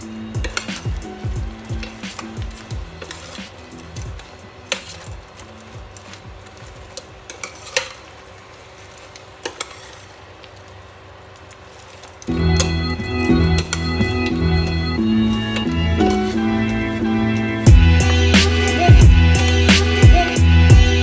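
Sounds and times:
loud music: 0.0 - 6.9, 12.3 - 21.0
metal utensil clicking on pan: 0.0 - 10.7
sauce sizzling in a pan: 0.0 - 12.3.

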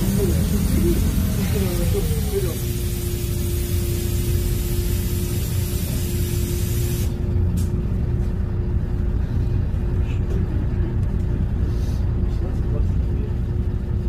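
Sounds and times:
loud air hiss: 0.0 - 7.2
bus engine rumble: 0.0 - 14.0.

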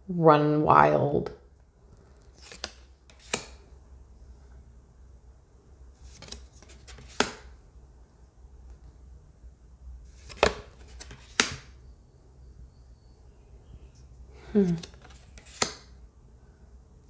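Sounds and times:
playing cards snapping and clicking: 2.4 - 3.6, 6.1 - 7.5, 10.2 - 11.7, 14.7 - 15.9.

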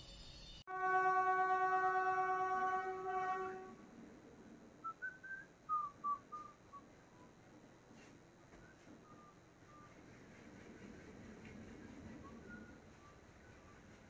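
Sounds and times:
locomotive horn blast: 0.7 - 3.8.

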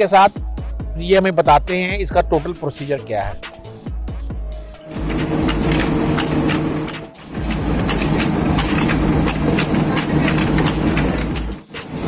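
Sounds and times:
motor hum: 4.8 - 12.0
machinery rattling: 4.9 - 12.0.

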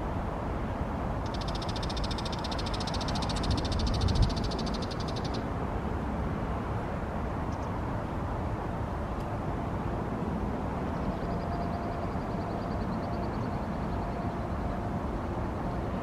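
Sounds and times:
bird chattering call: 1.3 - 5.4.

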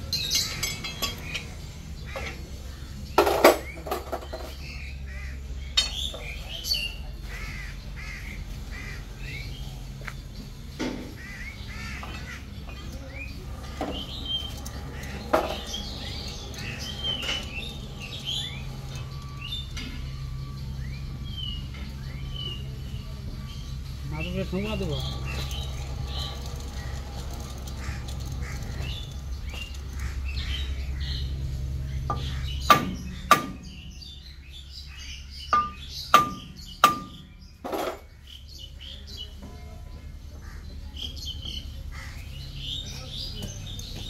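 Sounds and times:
birds calling: 0.0 - 44.0
steady low hum: 0.0 - 44.0
metallic tool clanks: 0.1 - 1.6
crows cawing: 5.0 - 5.5, 7.2 - 9.4, 10.9 - 12.8, 25.0 - 31.3, 40.4 - 40.7, 41.9 - 42.5.

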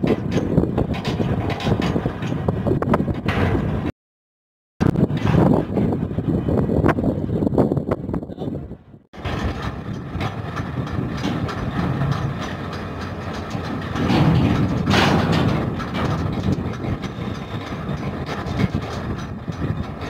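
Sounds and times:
metal clanks: 0.0 - 3.8, 9.2 - 20.0
metallic rumble of hatch covers: 0.0 - 3.9, 4.8 - 20.0.

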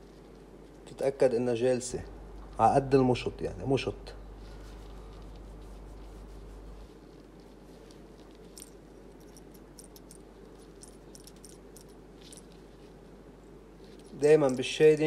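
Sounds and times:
clicks and rustles of handling: 4.4 - 15.0.

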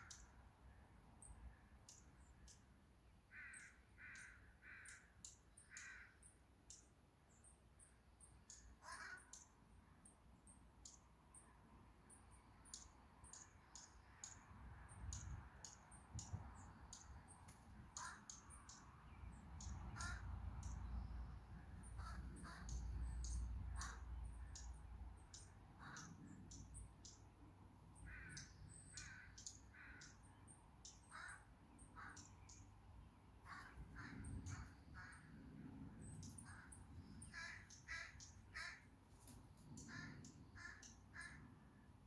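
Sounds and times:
small birds chirping: 0.0 - 42.0
crow cawing: 3.3 - 5.1, 5.7 - 6.2, 8.8 - 9.4, 17.9 - 18.4, 19.9 - 20.3, 21.8 - 24.1, 25.8 - 26.2, 28.1 - 30.2, 31.1 - 32.3, 33.4 - 35.3, 36.4 - 38.9, 39.8 - 41.5.

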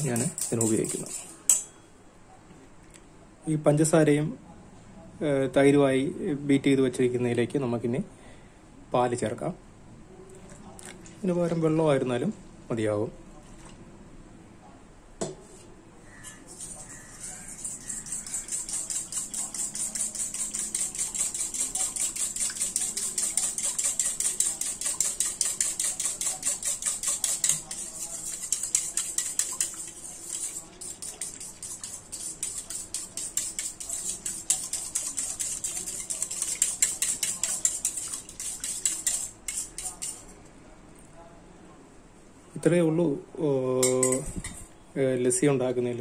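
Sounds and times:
whisk scraping metal bowl: 0.0 - 1.7, 16.1 - 40.4, 43.8 - 44.6.

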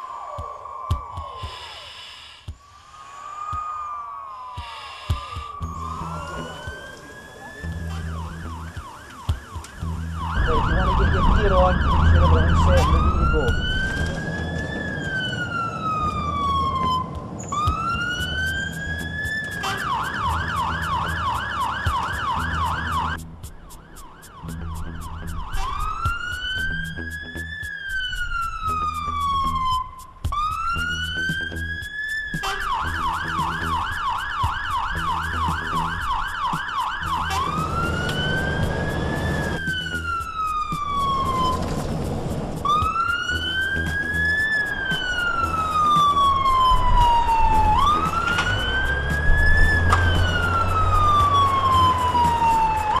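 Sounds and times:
fire engine siren wailing and yelping: 0.0 - 53.0
diesel engine rumbling: 5.6 - 23.8, 37.0 - 53.0.

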